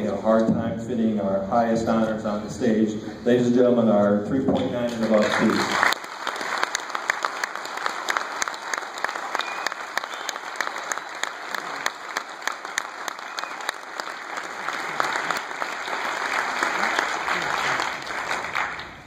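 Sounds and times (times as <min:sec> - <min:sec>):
audience applauding: 0:04.8 - 0:19.0.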